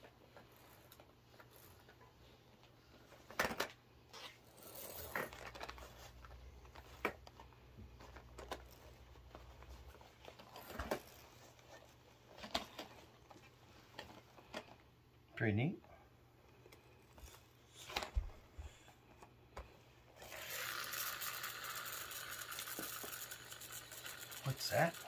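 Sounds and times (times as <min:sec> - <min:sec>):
toy cars clicking on mat: 0:00.0 - 0:02.0, 0:03.2 - 0:11.4, 0:20.2 - 0:25.0.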